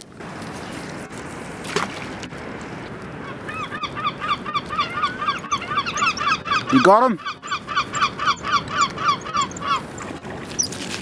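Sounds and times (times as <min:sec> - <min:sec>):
outdoor background noise: 0:00.0 - 0:11.0
birds calling rapidly: 0:03.2 - 0:10.8.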